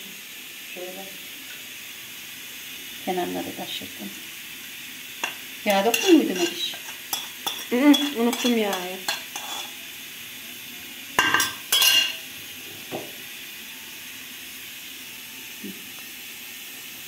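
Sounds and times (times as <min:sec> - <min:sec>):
faint steady hiss: 0:00.0 - 0:17.0
spoon clattering against ceramic bowl: 0:05.2 - 0:09.7, 0:11.2 - 0:12.2.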